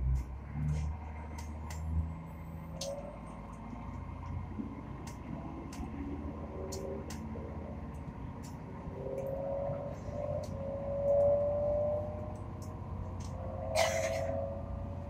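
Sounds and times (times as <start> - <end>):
train low rumble: 0.0 - 15.0
rising whine: 5.8 - 15.0.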